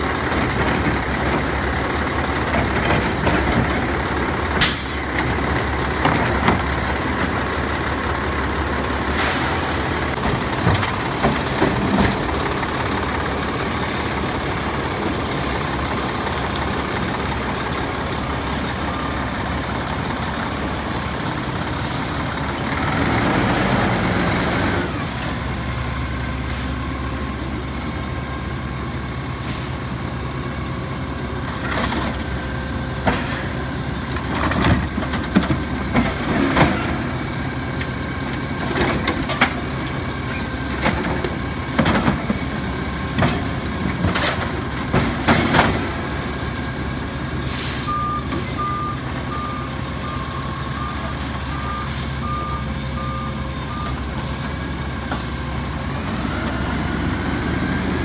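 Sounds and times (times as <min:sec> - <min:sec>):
truck diesel engine running: 0:00.0 - 0:58.0
air brakes hissing: 0:04.6 - 0:05.1, 0:08.8 - 0:10.2, 0:20.9 - 0:22.3, 0:26.4 - 0:26.9, 0:29.4 - 0:29.9, 0:47.4 - 0:48.6, 0:51.8 - 0:52.2.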